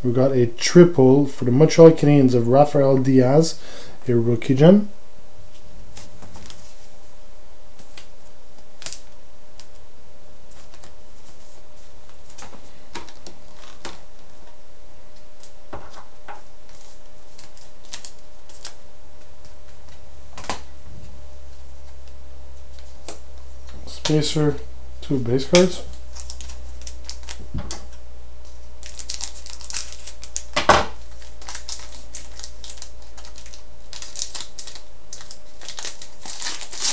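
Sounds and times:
steady low hum: 0:00.0 - 0:36.9
cards and wrappers handled: 0:05.9 - 0:06.9, 0:10.5 - 0:14.0, 0:16.7 - 0:20.6, 0:25.4 - 0:36.9.

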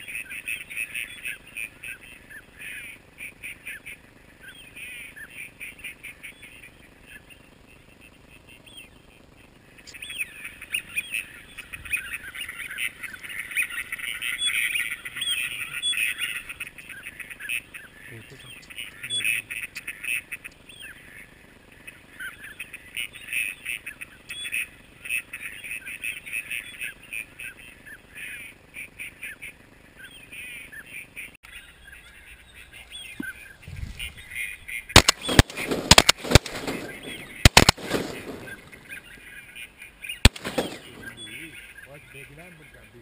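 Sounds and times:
ducks quacking: 0:00.0 - 0:43.0
shotgun shots: 0:34.9 - 0:39.1, 0:40.2 - 0:41.4.

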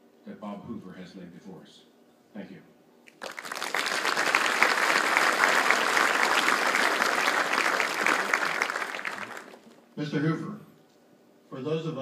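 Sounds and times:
large audience applauding: 0:03.2 - 0:09.8.

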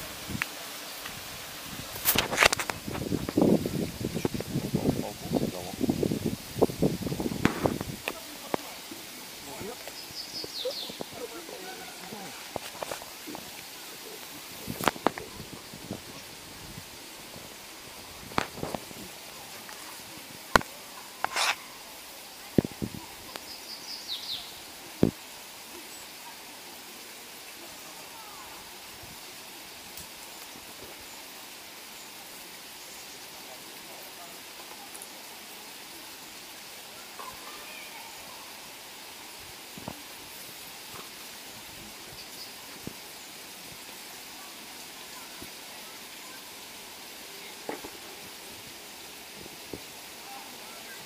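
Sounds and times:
steady background hiss: 0:00.0 - 0:51.0
bird chirping: 0:09.8 - 0:11.2.

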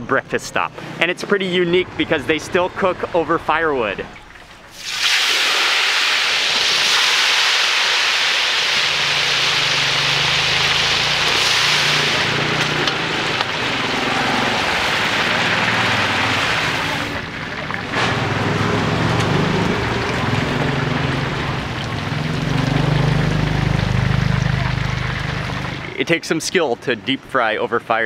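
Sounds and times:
chicken deep-frying in oil: 0:04.2 - 0:26.3
low engine hum: 0:08.8 - 0:26.0.

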